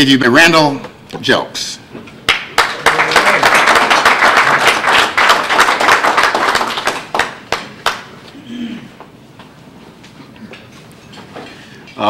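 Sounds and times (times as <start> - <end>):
audience applauding: 2.3 - 8.1.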